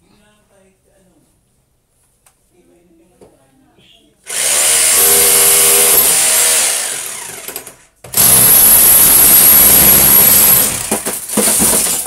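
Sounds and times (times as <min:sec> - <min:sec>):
power tool whining: 0:04.3 - 0:11.8.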